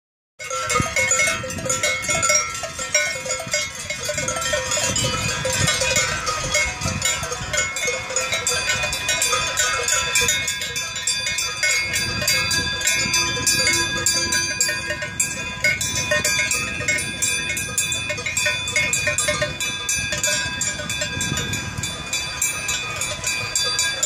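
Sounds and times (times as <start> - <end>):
cowbells clanking: 0.4 - 24.0.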